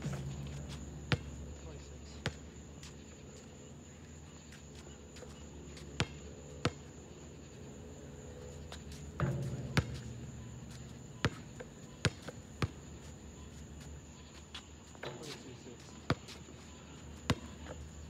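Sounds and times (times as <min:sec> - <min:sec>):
basketball bouncing on asphalt: 0:00.0 - 0:01.4, 0:02.2 - 0:02.6, 0:06.0 - 0:06.9, 0:08.7 - 0:13.9, 0:17.2 - 0:17.8.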